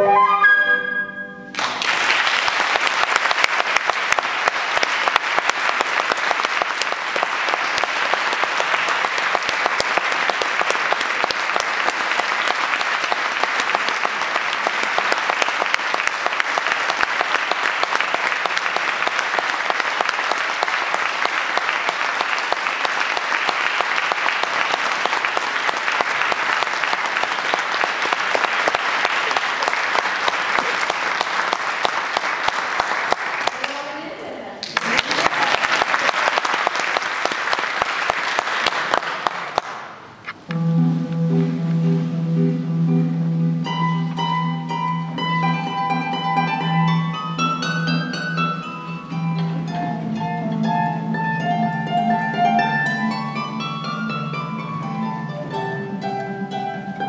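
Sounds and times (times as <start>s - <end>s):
audience applauding: 1.5s - 40.2s.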